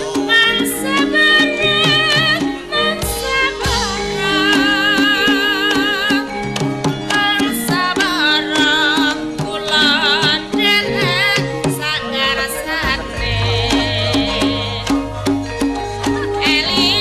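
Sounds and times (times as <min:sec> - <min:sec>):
woman singing high wavering melody: 0:00.2 - 0:06.3.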